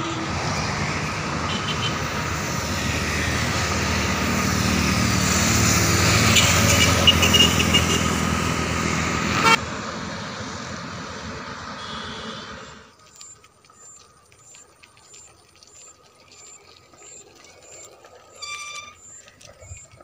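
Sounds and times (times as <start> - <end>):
vehicle passing: 0.0 - 13.0.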